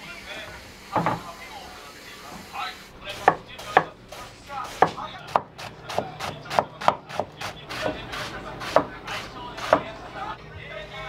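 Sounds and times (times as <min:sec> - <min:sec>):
knife chopping cabbage on board: 0:04.6 - 0:09.9.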